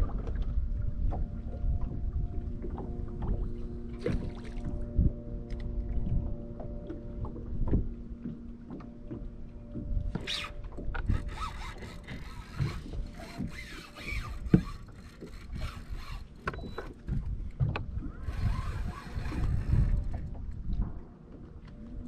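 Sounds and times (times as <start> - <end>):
water lapping at hull: 0.0 - 22.0
knocks and scrapes on boat deck: 7.2 - 21.8.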